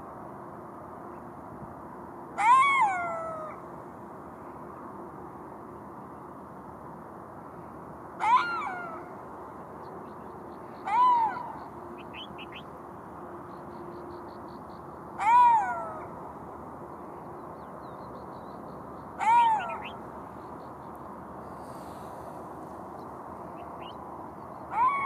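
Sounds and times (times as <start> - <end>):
jackal wailing calls: 19.2 - 20.0, 24.7 - 25.0.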